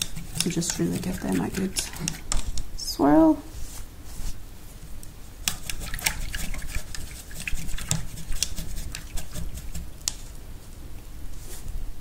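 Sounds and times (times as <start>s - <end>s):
paintbrush swirled in water: 0.0s - 2.6s, 5.5s - 10.3s.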